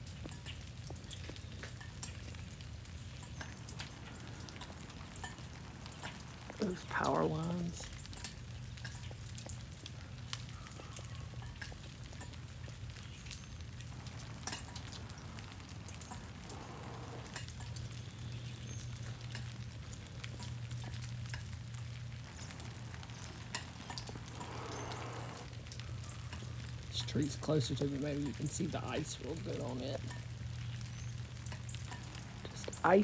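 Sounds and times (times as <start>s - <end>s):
drizzle crackling on icy branches: 0.0s - 33.0s
low steady hum: 1.4s - 33.0s.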